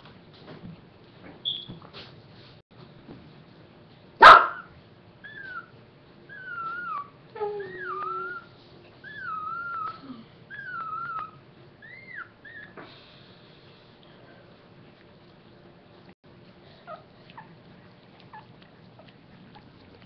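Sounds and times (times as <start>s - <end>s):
dog whining: 5.2s - 12.9s.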